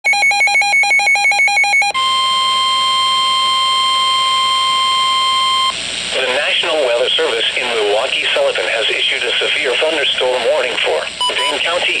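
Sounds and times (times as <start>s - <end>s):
steady warning alarm tone: 0.0s - 5.8s
two-pitch beeping alarm: 0.0s - 5.8s, 11.2s - 11.6s.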